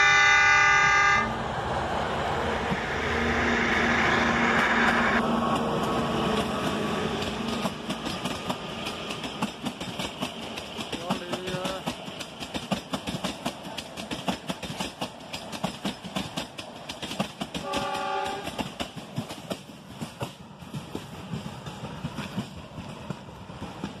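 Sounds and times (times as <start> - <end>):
locomotive horn: 0.0 - 1.3, 17.6 - 18.6
train wheels clattering over rail joints: 4.8 - 24.0.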